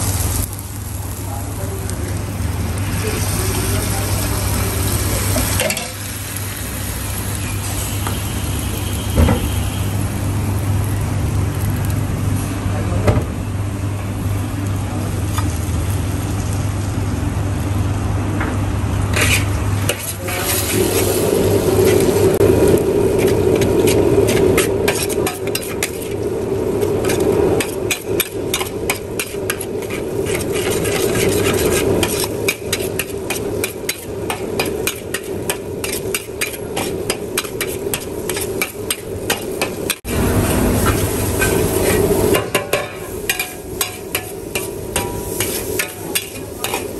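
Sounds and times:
noodles sizzling in a wok: 0:00.0 - 0:12.7, 0:13.4 - 0:46.9
spatula scraping a pan: 0:19.1 - 0:21.2, 0:23.1 - 0:40.0, 0:40.8 - 0:46.9.

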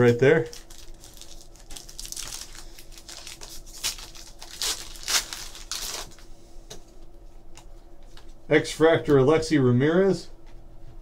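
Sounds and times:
foil wrapper tearing and crinkling: 0:00.5 - 0:06.2.

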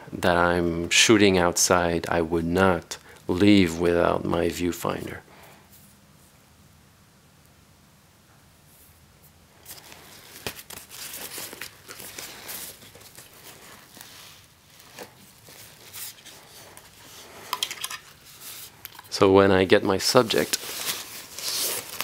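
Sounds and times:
nylon backpack rustling: 0:09.6 - 0:18.9, 0:20.0 - 0:22.0.

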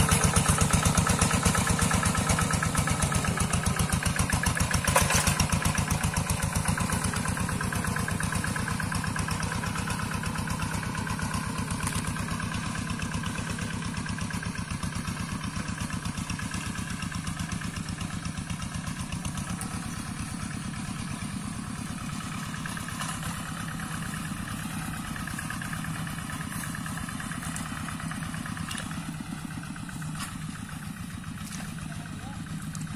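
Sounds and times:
diesel engine chugging: 0:00.0 - 0:32.9.

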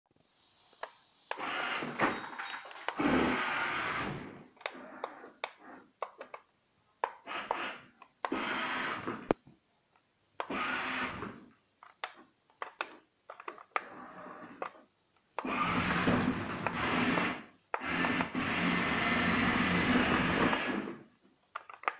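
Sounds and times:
toy car electric motor whirring: 0:03.0 - 0:05.8, 0:07.1 - 0:09.2, 0:15.4 - 0:20.9
sharp clicks and knocks: 0:21.4 - 0:21.9.

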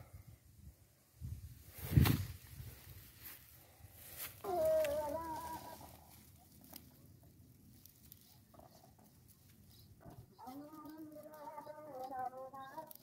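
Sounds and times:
chicken calling: 0:04.5 - 0:06.4.

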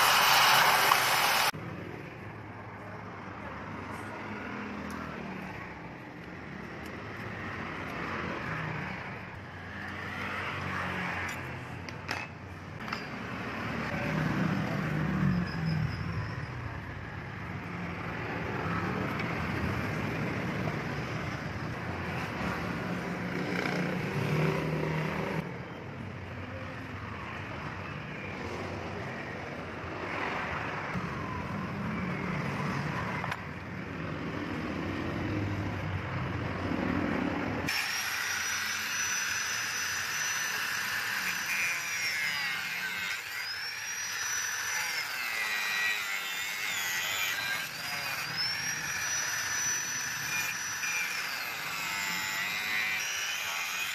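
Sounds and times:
road traffic passing: 0:00.0 - 0:53.9.

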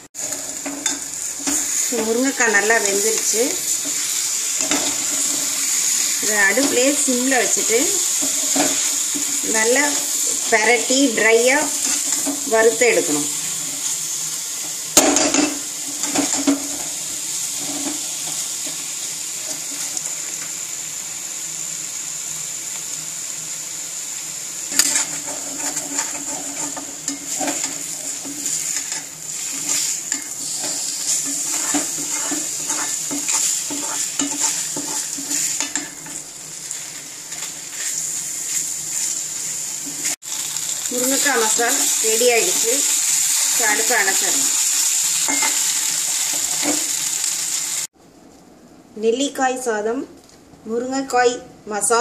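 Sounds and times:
high sizzle: 0:00.0 - 0:48.4
metal spatula scraping pan: 0:00.2 - 0:14.0, 0:24.7 - 0:39.2.

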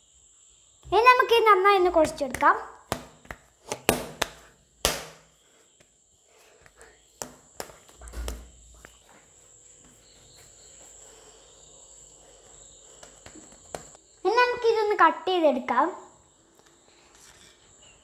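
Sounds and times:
soft pats on dough: 0:02.0 - 0:11.6, 0:12.2 - 0:14.0
dough knocked on a table: 0:02.3 - 0:05.3, 0:13.0 - 0:14.0.

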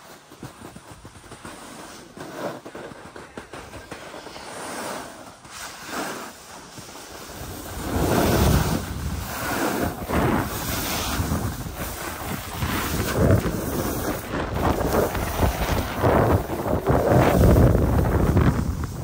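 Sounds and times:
skis sliding on snow: 0:00.0 - 0:19.0
wind buffeting microphone: 0:07.1 - 0:19.0.

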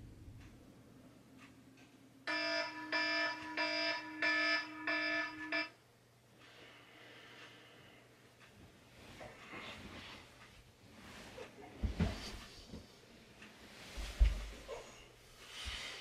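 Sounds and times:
electronic alarm buzzing: 0:02.3 - 0:05.8.

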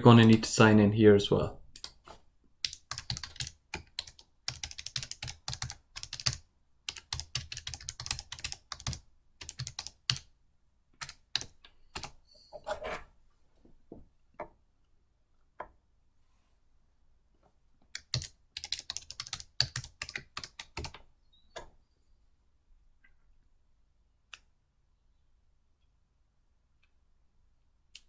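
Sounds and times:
typing on computer keyboard: 0:02.6 - 0:10.3, 0:11.0 - 0:12.2, 0:18.0 - 0:21.0.

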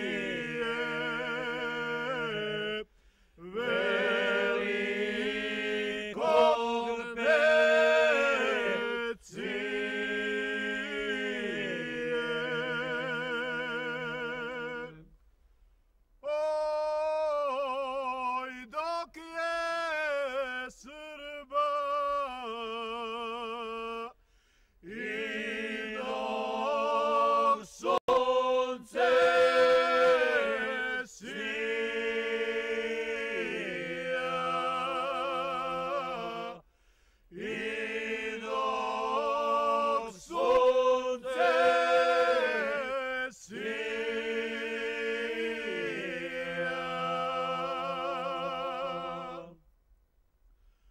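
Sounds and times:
person chanting unaccompanied: 0:00.0 - 0:15.1, 0:24.8 - 0:36.7, 0:37.3 - 0:49.6.

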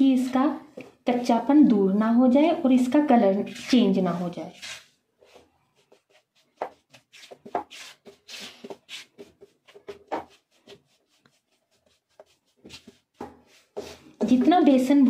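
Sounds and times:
spatula scraping a frying pan: 0:03.3 - 0:14.1.

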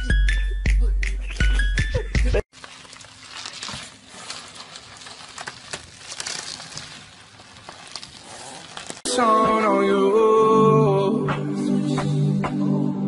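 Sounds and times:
bubble wrap crinkling: 0:02.5 - 0:09.1.

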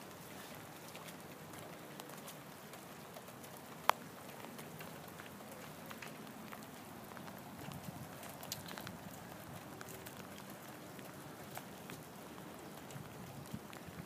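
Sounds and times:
light rain patter: 0:00.0 - 0:14.0
raindrop ticks: 0:00.0 - 0:14.0.

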